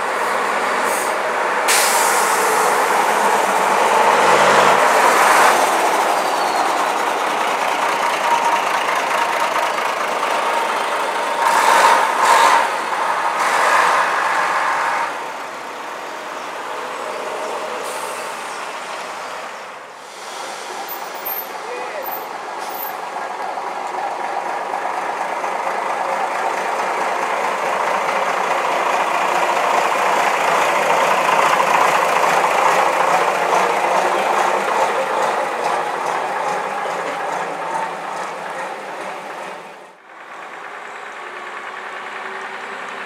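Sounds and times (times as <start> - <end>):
diesel buses driving past: 0.0 - 43.0
air brakes hissing: 0.7 - 4.0, 17.7 - 23.0.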